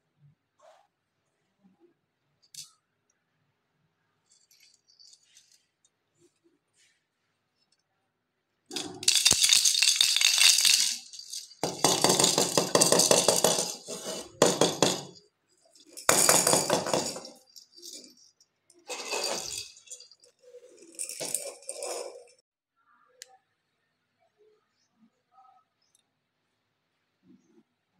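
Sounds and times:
plastic baby rattles shaken: 0:08.7 - 0:15.2, 0:15.8 - 0:18.2, 0:18.8 - 0:20.2.

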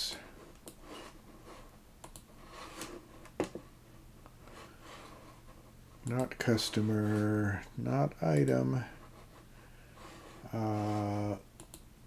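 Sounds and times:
steady low hum: 0:00.0 - 0:12.0
computer mouse clicks: 0:02.0 - 0:02.3, 0:11.6 - 0:11.9.

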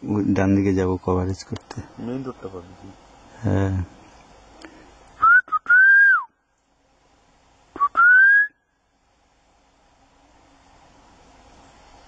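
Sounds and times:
person whistling: 0:05.2 - 0:06.3, 0:07.8 - 0:08.6.

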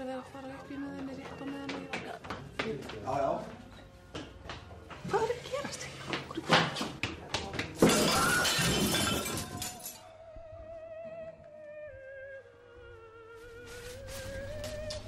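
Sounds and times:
plates and glasses shattering: 0:07.8 - 0:10.0.

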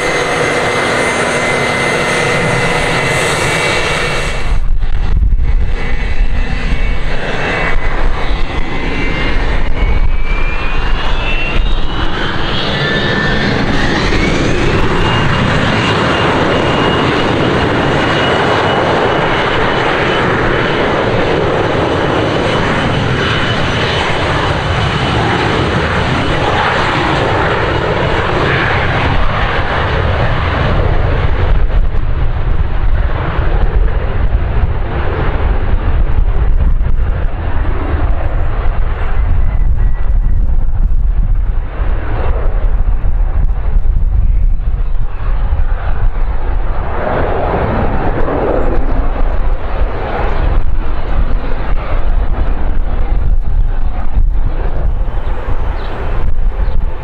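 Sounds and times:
engine whine rising in pitch: 0:00.0 - 0:20.8
jet engines running up: 0:00.0 - 0:57.0.

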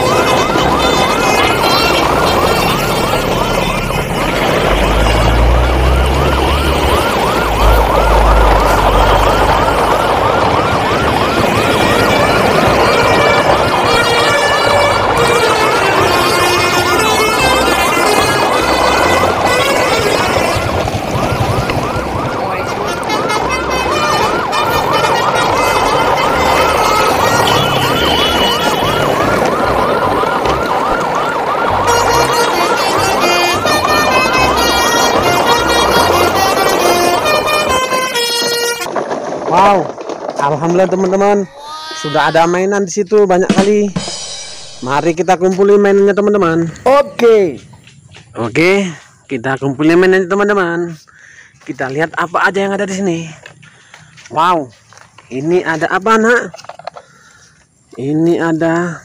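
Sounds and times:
electronic siren yelping: 0:00.0 - 0:39.0, 0:41.4 - 0:42.7
background music with bass: 0:43.4 - 0:46.0.

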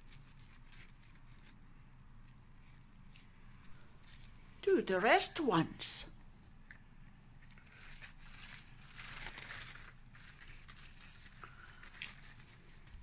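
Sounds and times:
rustling and crinkling of dry leaves: 0:07.4 - 0:13.0.

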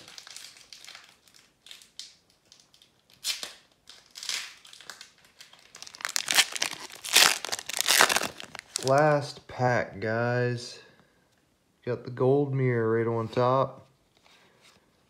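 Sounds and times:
foil wrapper crinkling and tearing: 0:00.0 - 0:09.1.

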